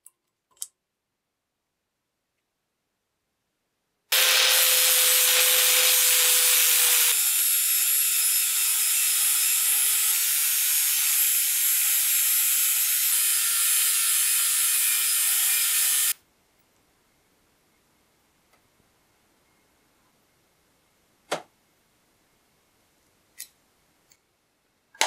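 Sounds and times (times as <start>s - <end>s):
angle grinder grinding steel: 4.1s - 16.2s.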